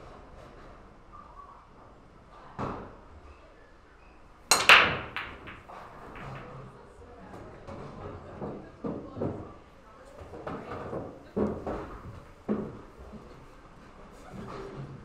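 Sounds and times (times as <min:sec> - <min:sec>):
cue striking cue ball: 0:04.5 - 0:06.5
cue ball cracking into balls: 0:04.5 - 0:06.6
pool balls clicking: 0:04.5 - 0:06.6.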